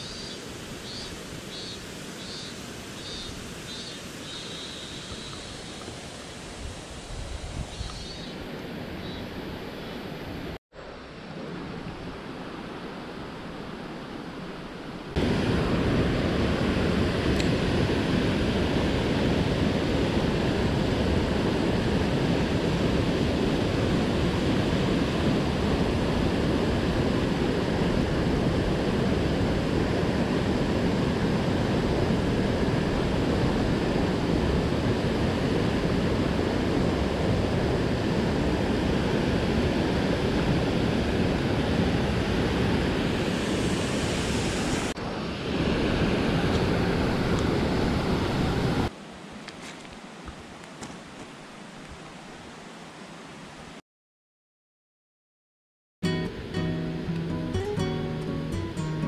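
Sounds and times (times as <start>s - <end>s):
mountain stream rushing: 0.0s - 53.8s.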